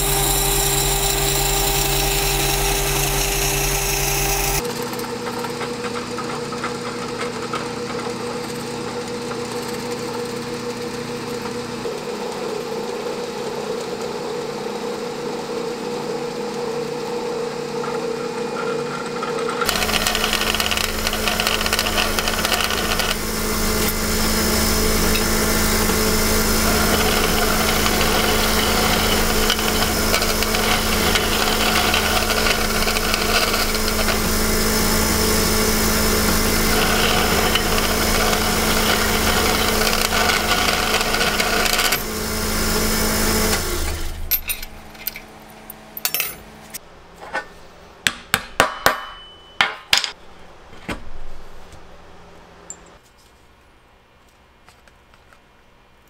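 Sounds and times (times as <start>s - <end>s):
electric power tool running: 0.0s - 44.8s.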